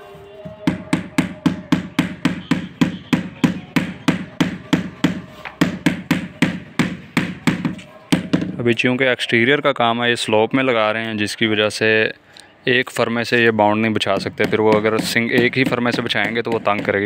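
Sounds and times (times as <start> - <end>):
mallet tapping floor tile: 14.1 - 17.0.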